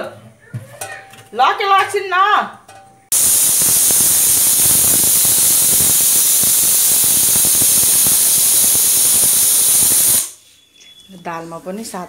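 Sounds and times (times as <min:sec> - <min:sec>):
pressure cooker whistling steam: 0:03.1 - 0:11.2.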